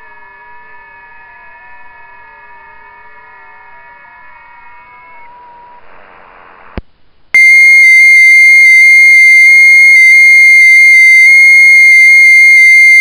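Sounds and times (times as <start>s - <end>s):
faint steady radio tones: 1.6s - 6.8s, 7.4s - 13.0s
receiver hiss: 5.5s - 13.0s
loud high-pitched transmit tone: 7.4s - 13.0s.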